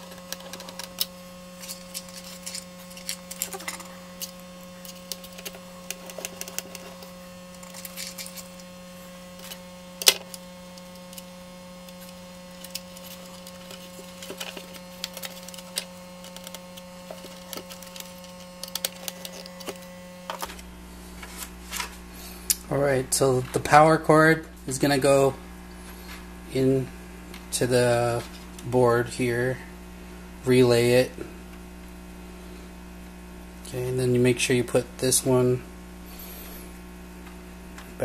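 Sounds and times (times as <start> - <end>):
screwdriver and plastic parts clicking: 0.0 - 8.7, 9.4 - 11.3, 11.9 - 20.6
steady low hum: 0.0 - 38.0.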